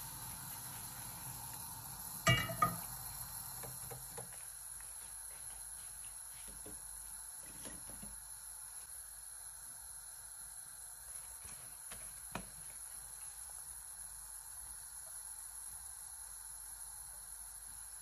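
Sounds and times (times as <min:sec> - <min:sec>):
gas burner low rumble: 0:00.0 - 0:04.8
high-pitched gas hiss: 0:00.0 - 0:18.0
pot clanking on metal grate: 0:02.2 - 0:02.9
light taps on pot: 0:02.3 - 0:02.9.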